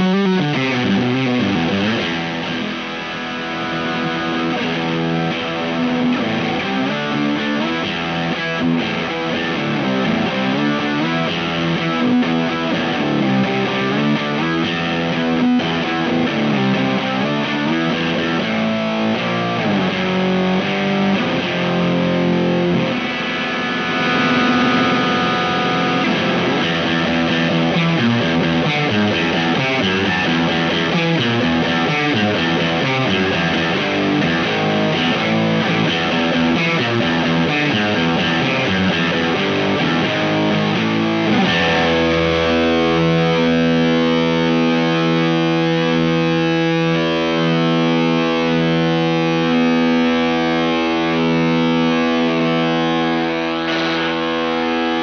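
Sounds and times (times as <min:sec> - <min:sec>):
distorted electric guitar: 0:00.0 - 0:55.0.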